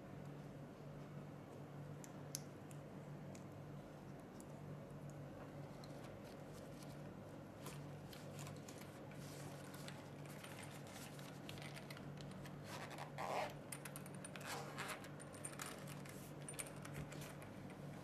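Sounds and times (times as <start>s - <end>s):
faint steady hum: 0.0s - 18.0s
rustling scrape: 7.6s - 11.7s.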